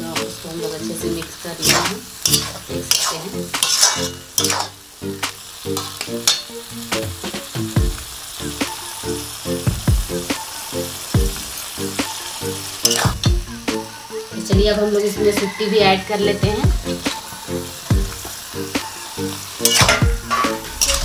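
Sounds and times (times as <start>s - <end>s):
potatoes sizzling in pan: 0.0s - 21.0s
metal spatula scraping pan: 1.6s - 4.8s, 5.8s - 6.5s, 12.8s - 13.2s, 19.6s - 21.0s
background music with beat: 4.2s - 21.0s.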